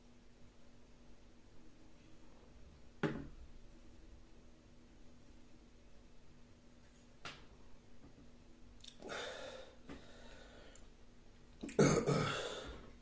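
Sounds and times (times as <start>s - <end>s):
man breathing out noisily: 9.0s - 10.8s.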